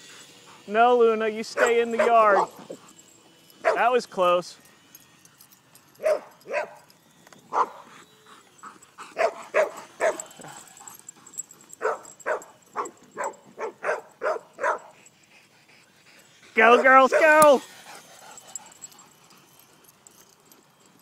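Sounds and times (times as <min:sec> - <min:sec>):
dogs barking: 0:01.4 - 0:03.0, 0:03.6 - 0:04.0, 0:06.0 - 0:06.9, 0:07.5 - 0:07.9, 0:08.6 - 0:15.2, 0:16.2 - 0:19.4.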